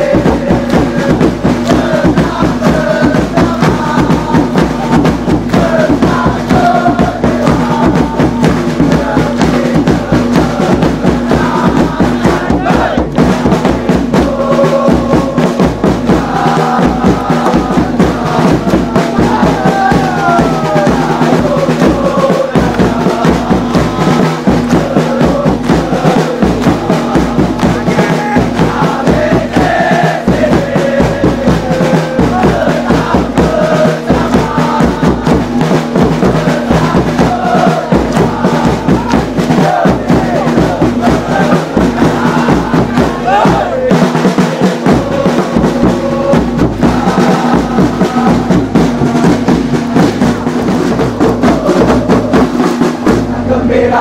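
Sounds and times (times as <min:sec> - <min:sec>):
crowd chanting: 0:00.0 - 0:54.0
steady drumbeat: 0:00.0 - 0:54.0
crowd clapping in time: 0:00.2 - 0:06.7, 0:21.7 - 0:29.2, 0:37.9 - 0:41.1.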